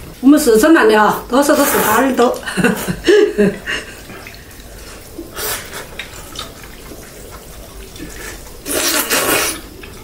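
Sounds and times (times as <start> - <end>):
wet noodle slurp: 5.3 - 10.0.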